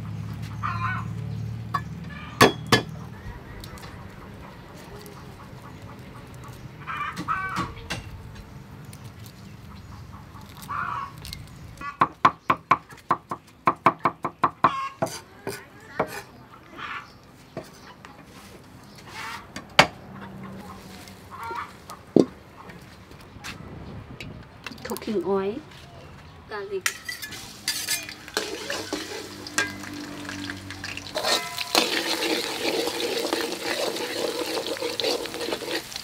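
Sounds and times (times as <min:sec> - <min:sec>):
chickens clucking: 0:00.4 - 0:12.2, 0:14.0 - 0:23.5.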